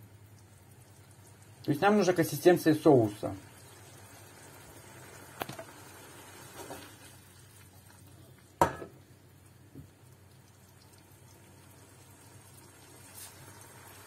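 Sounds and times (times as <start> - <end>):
sauce simmering: 0.0 - 14.0
frying pan knocking on stove grate: 8.6 - 9.0.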